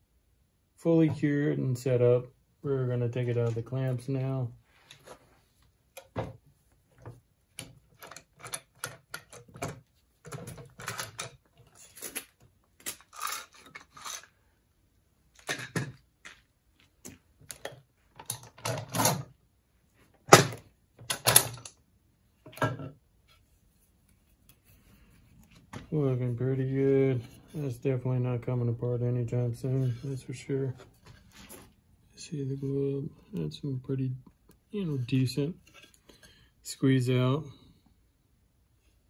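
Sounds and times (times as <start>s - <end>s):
clamps clicking rattling and knocking: 7.6s - 11.7s, 17.5s - 19.3s, 20.3s - 21.8s.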